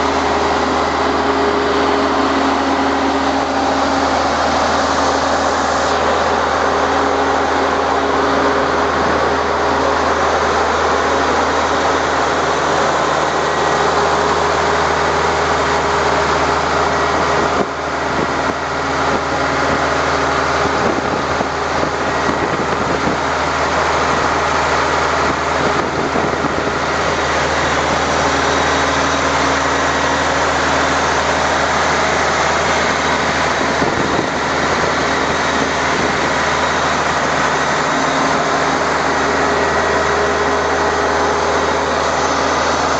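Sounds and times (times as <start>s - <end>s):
air compressor engine drone: 0.0s - 42.9s.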